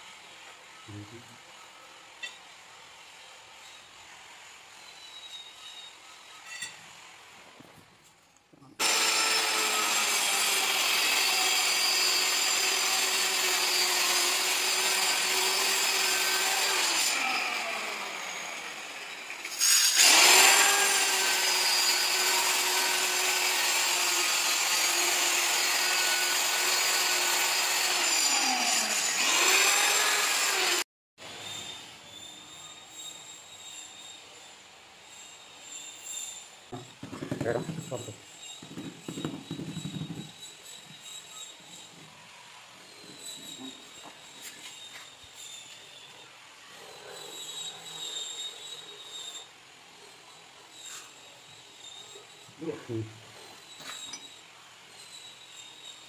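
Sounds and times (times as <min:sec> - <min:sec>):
electric cutter cutting marble: 0:08.8 - 0:30.8.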